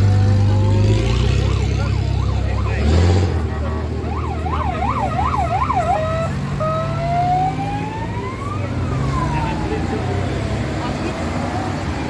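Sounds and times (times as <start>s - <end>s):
off-road vehicle engines humming: 0.0s - 12.0s
electronic vehicle siren: 1.2s - 3.0s, 4.0s - 10.7s.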